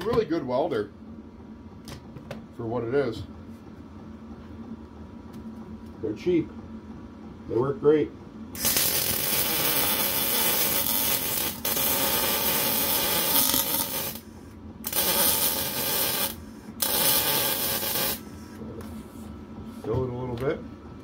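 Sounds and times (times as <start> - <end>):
electric welding arc: 8.6 - 14.2, 14.8 - 18.3.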